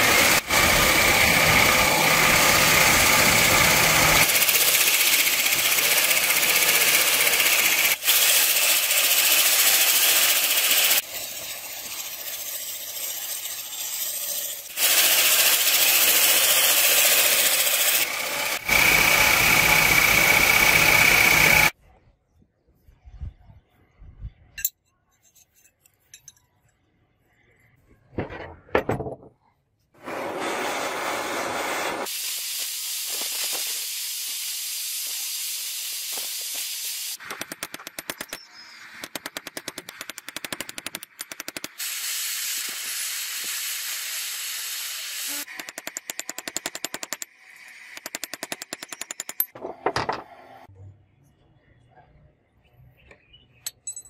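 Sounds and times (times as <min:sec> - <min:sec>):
gas torch hissing: 0:30.0 - 0:37.2.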